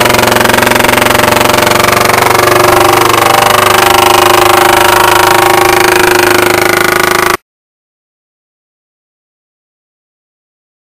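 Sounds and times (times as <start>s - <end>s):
paintball marker firing full-auto: 0.0s - 7.4s.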